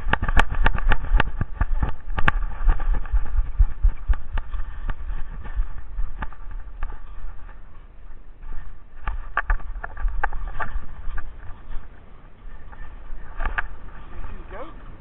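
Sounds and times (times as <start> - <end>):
camera knocking and clicking: 0.0 - 7.0, 9.0 - 11.3
low rumble: 0.0 - 15.0.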